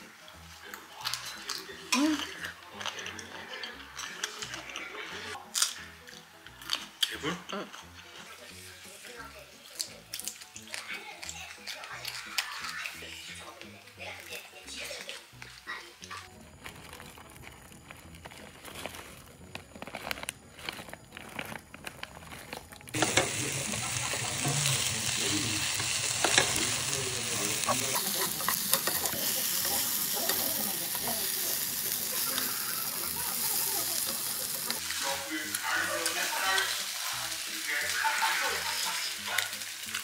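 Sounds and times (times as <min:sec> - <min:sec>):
food sizzling in a pan: 0:07.8 - 0:17.4, 0:22.9 - 0:40.0.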